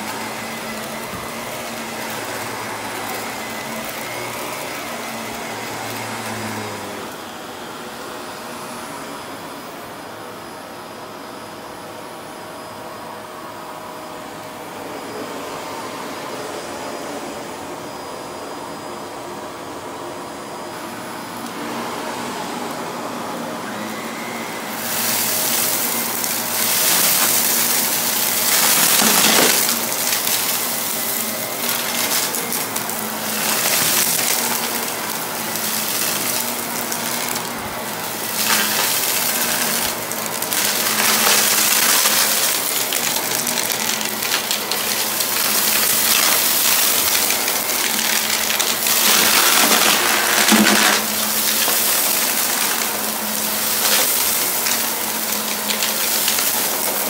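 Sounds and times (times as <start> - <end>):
debris rattling in vacuum: 0.0 - 7.1, 23.6 - 57.0
vacuum cleaner motor hum: 0.0 - 57.0.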